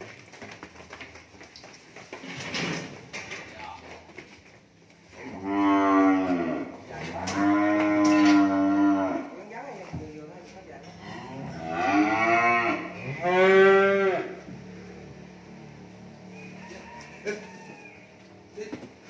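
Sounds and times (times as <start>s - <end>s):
cattle mooing: 5.2s - 9.4s, 10.9s - 14.5s.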